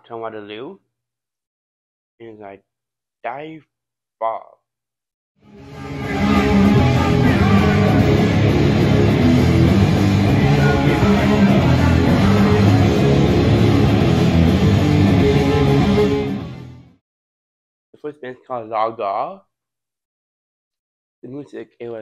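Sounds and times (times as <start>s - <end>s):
live rock band playing: 5.9s - 16.6s.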